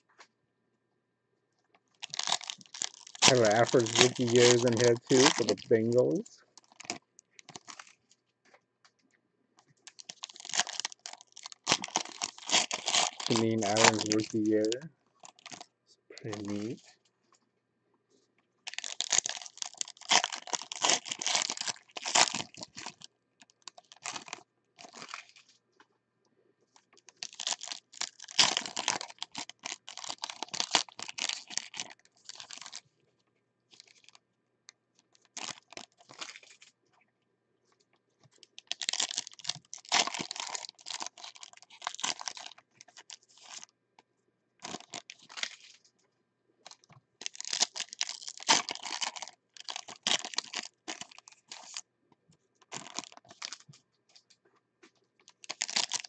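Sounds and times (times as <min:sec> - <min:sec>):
foil wrappers crinkling and tearing: 0:02.0 - 0:08.2, 0:09.9 - 0:16.9, 0:18.7 - 0:25.6, 0:26.8 - 0:32.9, 0:33.7 - 0:34.2, 0:35.1 - 0:36.7, 0:38.4 - 0:43.7, 0:44.6 - 0:45.8, 0:46.7 - 0:51.8, 0:52.6 - 0:53.8, 0:55.2 - 0:56.0
cards being handled: 0:03.2 - 0:06.2, 0:11.8 - 0:14.9.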